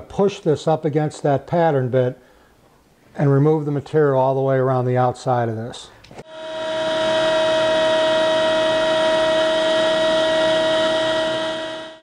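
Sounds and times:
router whining: 6.2s - 12.0s.

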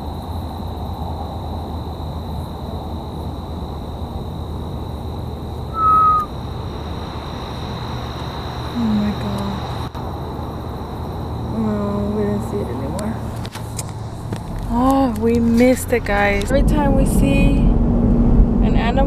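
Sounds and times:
insect drone: 0.0s - 18.0s
short falling whistle: 5.7s - 6.3s
low rumble: 14.0s - 19.0s.

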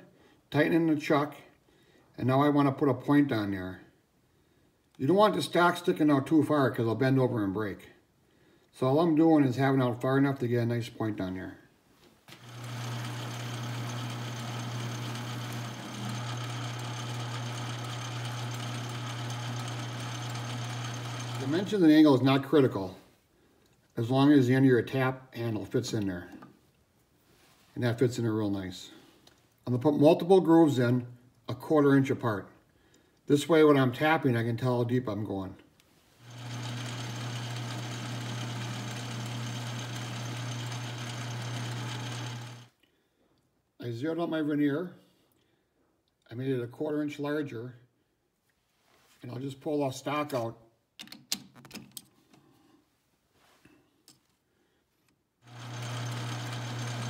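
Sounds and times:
metal lathe running: 12.4s - 21.8s, 36.2s - 42.7s, 55.5s - 57.0s.

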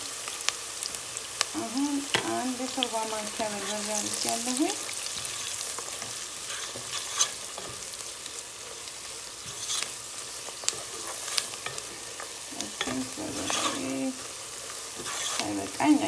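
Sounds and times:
onions sizzling in pot: 0.0s - 16.0s
wooden spatula scraping pot: 3.5s - 7.9s, 9.4s - 10.0s, 10.7s - 14.3s, 14.9s - 16.0s.

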